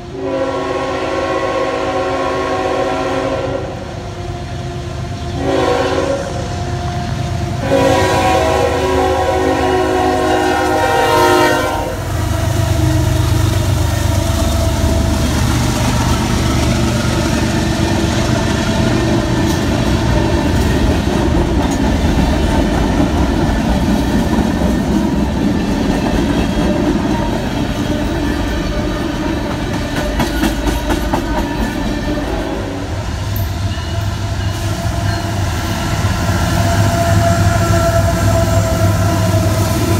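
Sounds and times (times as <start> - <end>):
train horn blasts: 0.0 - 15.3, 27.8 - 30.6, 31.2 - 39.9
train rumbling past: 0.0 - 39.9.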